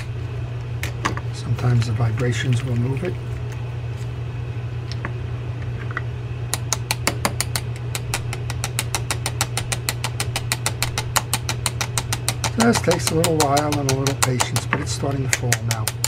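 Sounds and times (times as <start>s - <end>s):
steady low hum: 0.0s - 16.0s
screwdriver tapping metal reel: 12.0s - 16.0s.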